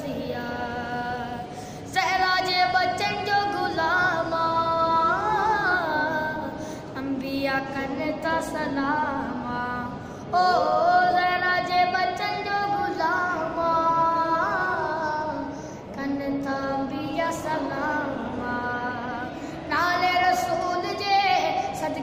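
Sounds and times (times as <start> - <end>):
boy singing unaccompanied: 0.0 - 22.0
singer breathing: 1.5 - 1.9, 6.5 - 7.0, 10.0 - 10.3, 15.5 - 15.9, 19.3 - 19.7.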